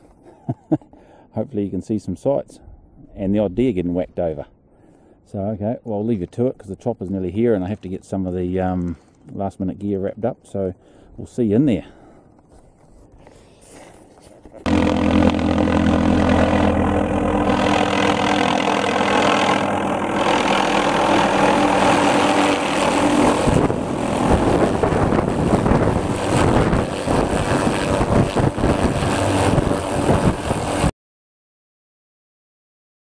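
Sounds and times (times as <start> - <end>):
helicopter turbine and rotor: 14.7 - 30.9.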